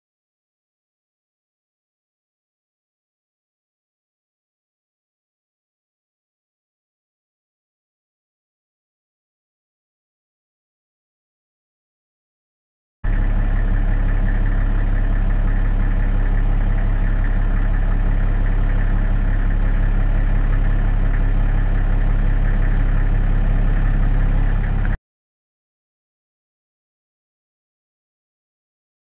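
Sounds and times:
engine idling hum: 0:13.0 - 0:25.0.

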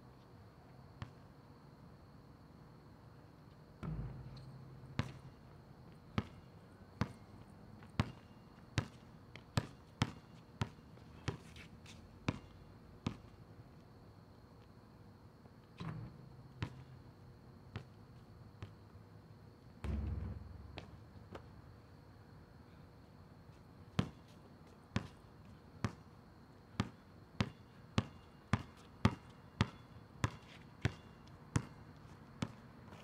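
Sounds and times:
heavy low thud: 0:03.8 - 0:05.0, 0:19.8 - 0:21.3
basketball bouncing on asphalt: 0:03.8 - 0:11.5, 0:12.2 - 0:13.4, 0:15.8 - 0:17.0, 0:17.7 - 0:18.9, 0:19.8 - 0:21.7, 0:23.9 - 0:24.3, 0:25.0 - 0:25.2, 0:26.8 - 0:32.6.

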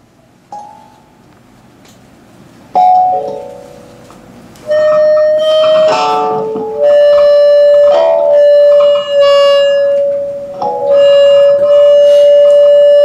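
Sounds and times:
kalimba notes ringing: 0:00.5 - 0:01.2, 0:02.7 - 0:04.0, 0:04.6 - 0:13.0.

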